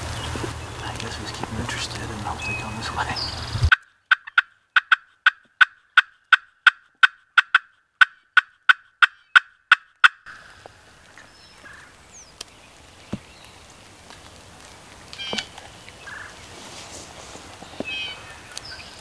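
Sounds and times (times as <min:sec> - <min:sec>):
turkey clucking: 0:00.1 - 0:11.9, 0:15.1 - 0:16.4.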